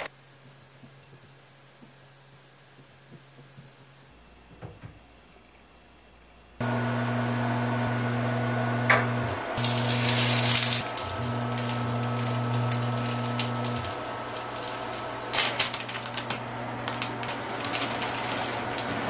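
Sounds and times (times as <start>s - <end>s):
sausages sizzling in hot oil: 9.6s - 15.3s.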